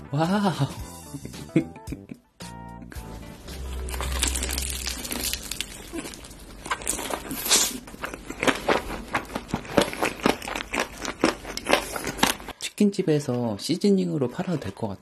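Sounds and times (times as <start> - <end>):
music: 0.0 - 5.6
crunchy chewing of fried chicken: 3.6 - 12.6.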